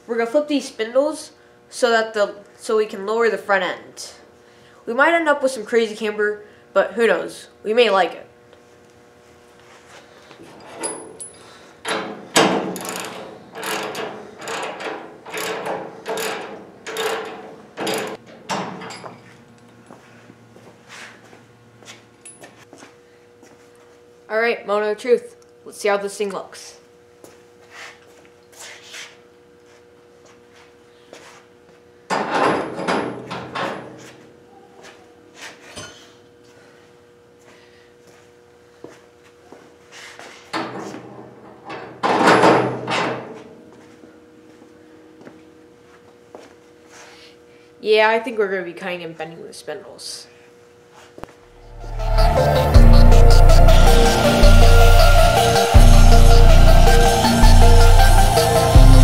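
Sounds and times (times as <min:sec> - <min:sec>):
steady faint hum: 0:00.0 - 0:59.0
ratchet wrench ratcheting: 0:12.8 - 0:18.2.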